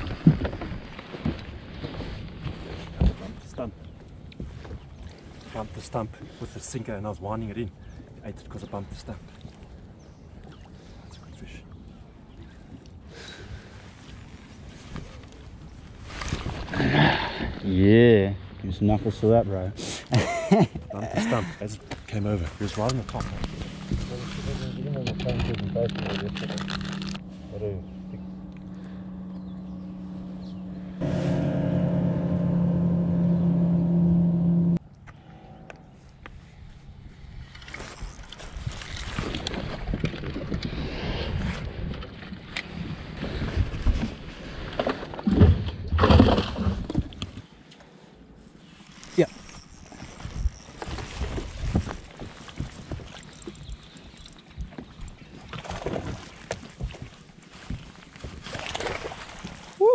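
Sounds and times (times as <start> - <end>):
knocks and thumps in a boat: 0.0 - 3.5, 50.0 - 59.7
outboard motor running: 21.2 - 35.9, 48.7 - 58.9.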